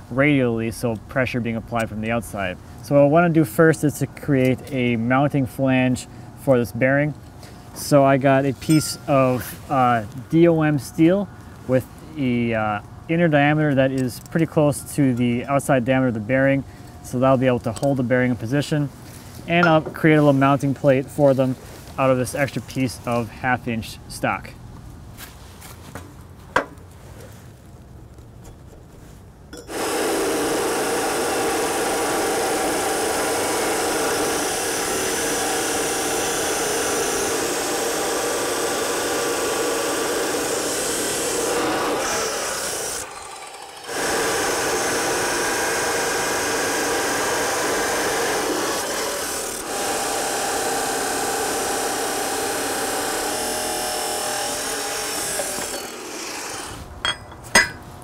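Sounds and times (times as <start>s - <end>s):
chop saw cutting metal tube: 29.6s - 57.9s.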